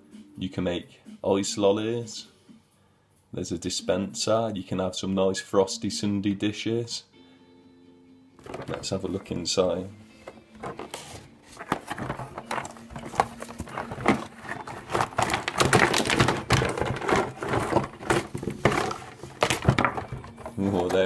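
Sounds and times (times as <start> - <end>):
cardboard box being opened: 8.4 - 9.0, 10.3 - 21.0
plastic toy parts clattering: 8.4 - 9.0, 10.3 - 21.0.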